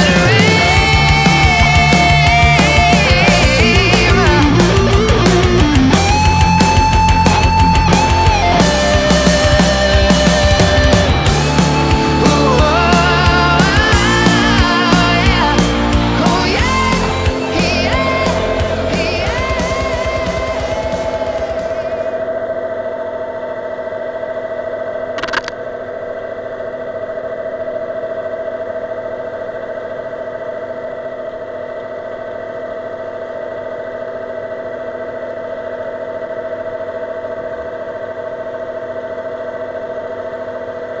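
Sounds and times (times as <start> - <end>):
sharp click: 25.2 - 25.6.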